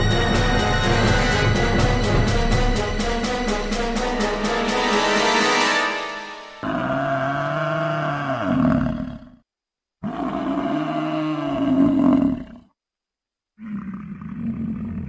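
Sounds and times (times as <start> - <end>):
deep animal roar: 6.6 - 9.4, 10.0 - 12.7, 13.6 - 15.0.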